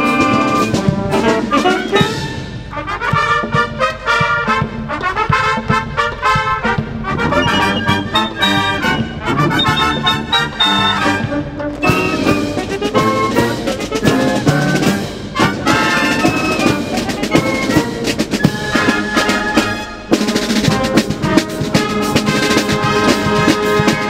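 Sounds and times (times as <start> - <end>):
piccolos: 0.0 - 24.0
snare drums: 0.0 - 24.0
trumpets and trombones: 0.0 - 24.0.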